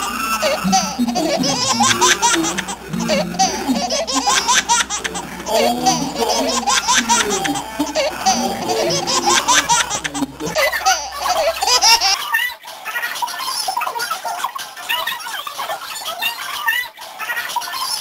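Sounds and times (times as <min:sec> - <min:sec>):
chatter: 0:00.0 - 0:12.2
girls laughing loudly: 0:00.0 - 0:12.2.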